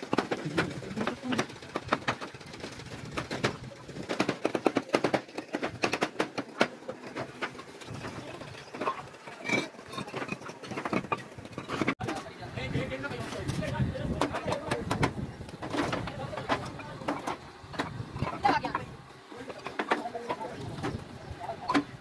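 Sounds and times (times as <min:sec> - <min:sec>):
bricks clinking together: 0:03.1 - 0:12.0.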